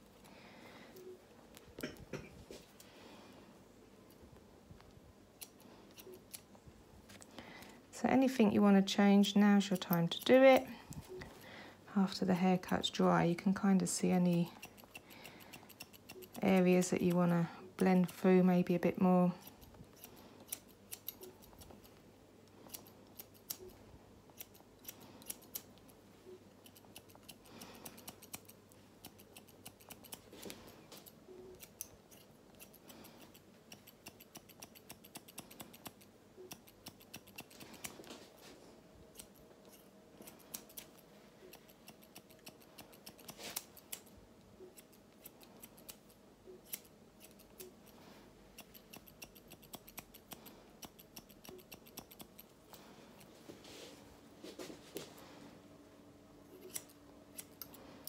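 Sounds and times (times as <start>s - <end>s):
scissors snipping: 5.3s - 6.5s, 9.2s - 11.4s, 12.6s - 22.0s, 22.6s - 25.8s, 26.6s - 38.2s, 39.1s - 53.3s, 56.5s - 57.8s.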